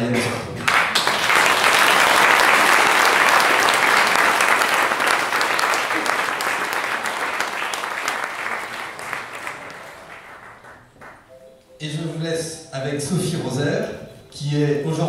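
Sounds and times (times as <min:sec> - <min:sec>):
audience applauding: 0:00.6 - 0:11.4.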